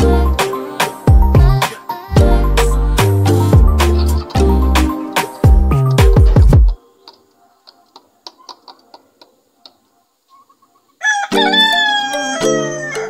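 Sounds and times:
rooster crowing: 11.0s - 13.0s.

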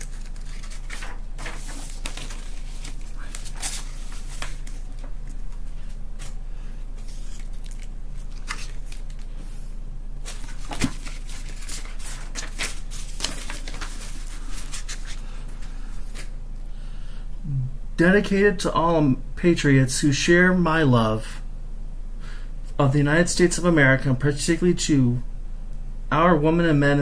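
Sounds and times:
pages turning and rustling: 0.0s - 6.4s, 7.0s - 16.3s.

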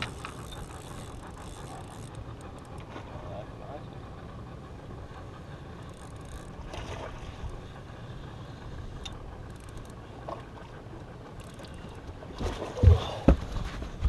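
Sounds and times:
boat low rumble: 0.0s - 14.0s
faint clicks: 8.9s - 10.4s, 11.0s - 12.2s.

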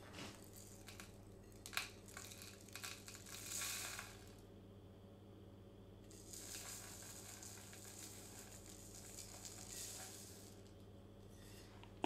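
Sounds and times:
coffee granules trickling into jug: 0.2s - 4.4s, 6.1s - 10.8s.

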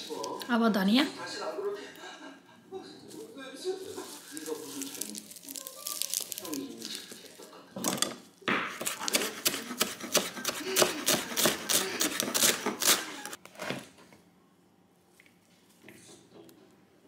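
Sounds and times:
knife chopping on wooden board: 8.5s - 13.1s.

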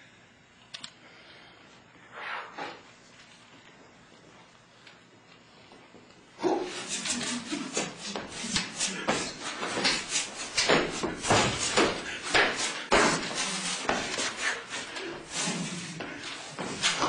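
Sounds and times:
footsteps scuffing and stamping: 5.7s - 17.0s
pole swishing through air: 6.4s - 17.0s.

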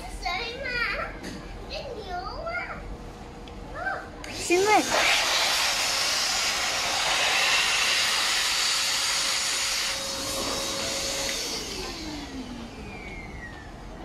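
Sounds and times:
electric air blower rushing: 4.2s - 14.0s.

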